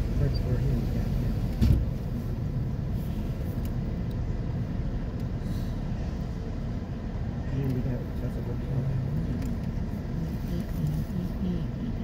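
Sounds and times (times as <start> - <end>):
idling traffic rumble: 0.0 - 12.0
short thump: 1.6 - 2.0.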